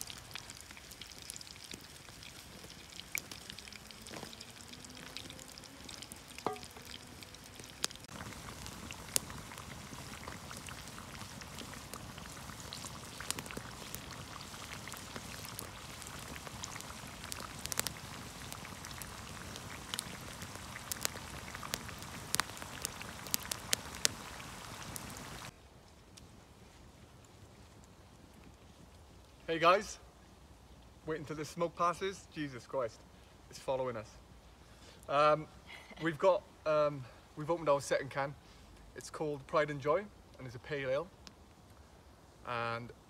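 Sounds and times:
chips bubbling in a pot: 0.0 - 25.5
campfire pops and crackles: 0.0 - 29.4, 40.3 - 41.9.

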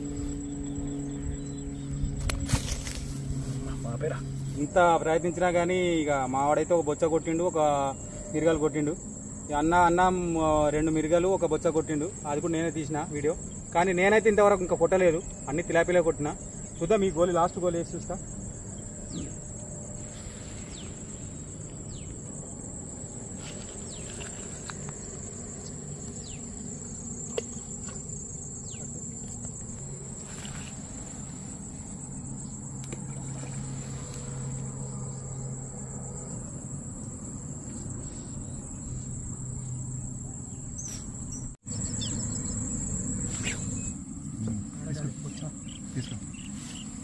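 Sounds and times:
faint short insect chirps: 0.0 - 4.7, 17.5 - 47.0
insects chirring drone: 0.0 - 47.0.

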